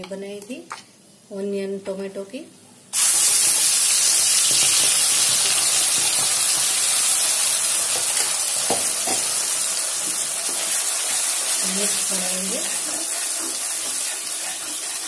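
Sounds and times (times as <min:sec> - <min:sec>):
paste sizzling in hot oil: 0:03.0 - 0:15.0.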